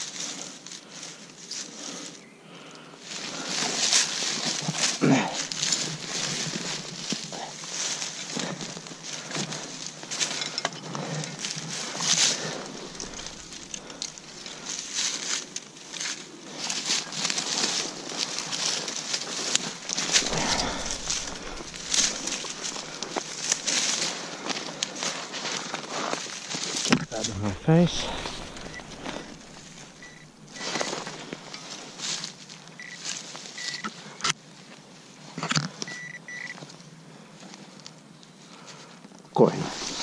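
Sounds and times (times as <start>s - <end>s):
soil and leaf litter crunching: 3.0s - 33.6s, 39.4s - 40.0s.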